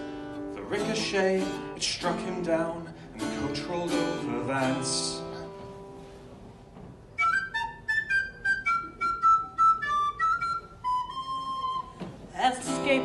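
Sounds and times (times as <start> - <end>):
flute-like woodwind melody: 7.1 - 12.3.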